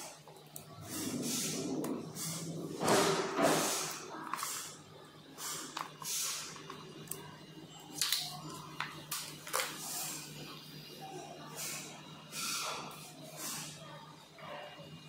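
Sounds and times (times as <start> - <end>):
steady low hum: 0.0 - 15.0
handling of electrical wires: 7.9 - 9.8.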